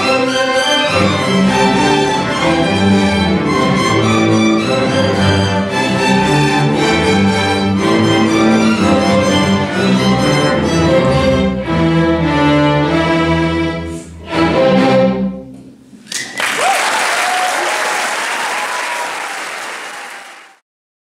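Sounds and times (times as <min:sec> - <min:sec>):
string orchestra playing: 0:00.0 - 0:15.8
audience applause and cheering: 0:16.1 - 0:20.6.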